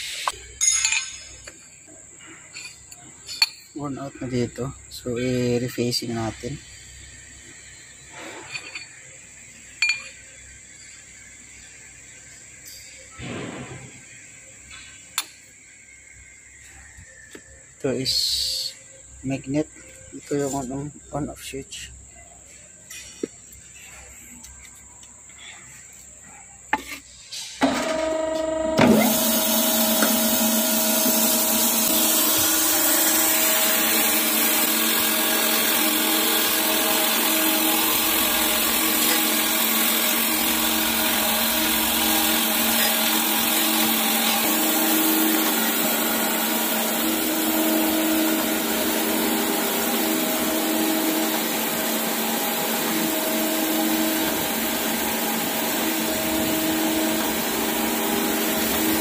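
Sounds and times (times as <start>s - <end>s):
grinder motor humming and hissing: 27.9s - 59.0s.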